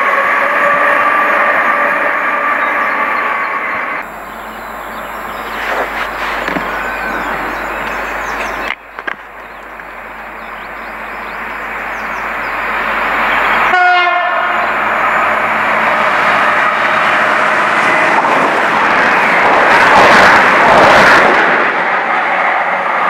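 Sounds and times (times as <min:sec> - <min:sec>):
train horn blast: 0:00.0 - 0:03.8, 0:13.6 - 0:18.3
diesel train passing at speed: 0:00.0 - 0:23.0.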